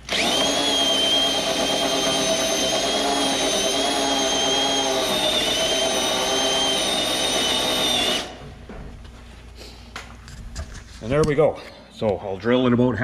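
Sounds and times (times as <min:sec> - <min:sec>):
cordless drill drilling steel: 0:00.0 - 0:08.4.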